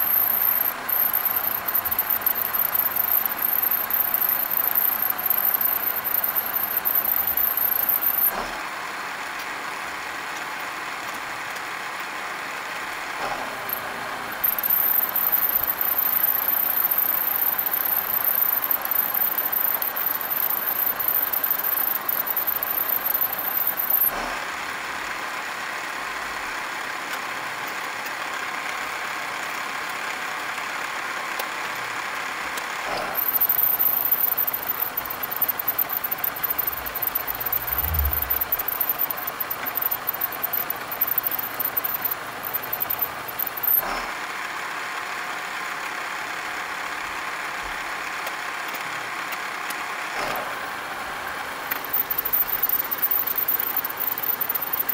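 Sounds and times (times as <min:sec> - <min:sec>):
milling machine hum: 0:00.0 - 0:08.5, 0:13.2 - 0:24.3, 0:32.9 - 0:44.1, 0:50.2 - 0:54.9.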